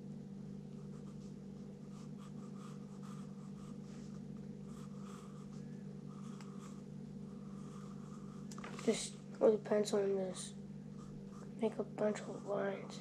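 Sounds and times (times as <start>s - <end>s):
steady low hum: 0.0s - 13.0s
pencil scratching on paper: 0.8s - 8.5s.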